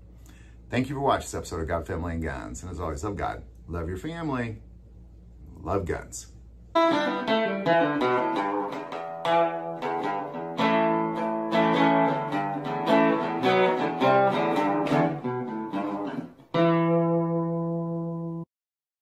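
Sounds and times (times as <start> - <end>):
guitar picked notes and chord: 6.8 - 18.5.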